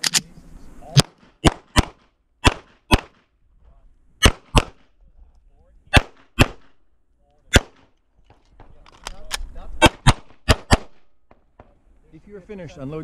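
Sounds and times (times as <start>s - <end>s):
pistol shots: 1.0s - 3.2s, 4.2s - 4.8s, 5.9s - 6.8s, 7.5s - 7.9s, 9.8s - 11.7s.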